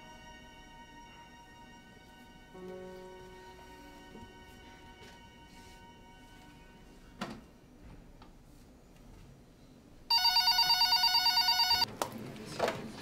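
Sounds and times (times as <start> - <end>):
telephone ringing: 10.1 - 11.9.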